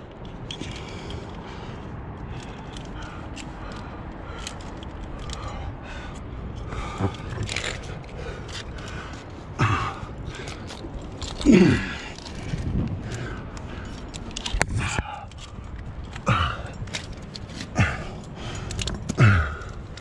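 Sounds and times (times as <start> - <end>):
steady low rush: 0.0 - 20.0
person breathing hard: 0.5 - 20.0
clicks and scrapes on rock: 7.0 - 9.4, 10.2 - 20.0
person grunting: 11.4 - 12.0, 19.2 - 19.7.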